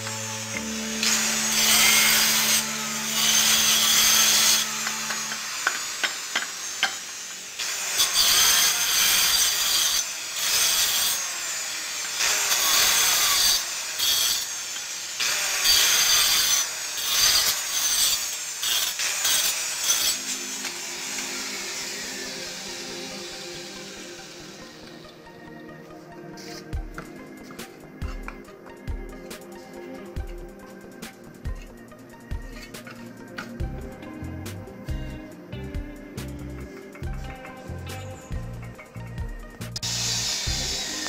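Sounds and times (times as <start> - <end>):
stone cutter grinding stone: 0.0 - 25.1, 39.8 - 41.0.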